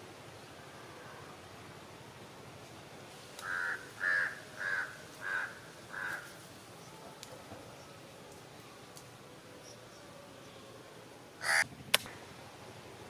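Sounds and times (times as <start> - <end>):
crow cawing: 3.4 - 6.3, 11.4 - 11.6.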